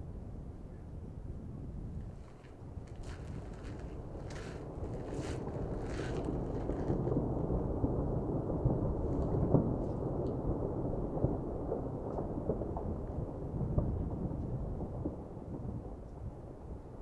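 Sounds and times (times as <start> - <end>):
deep volcanic rumble: 1.0 - 17.0
sharp cracks: 2.0 - 7.2.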